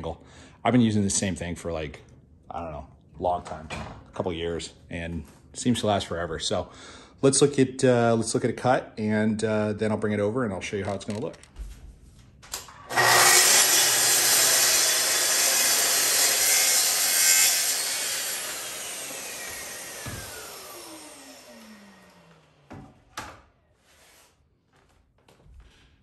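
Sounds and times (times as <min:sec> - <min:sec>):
track saw cutting panel: 0:12.6 - 0:23.3
saw motor winding down: 0:12.7 - 0:22.7.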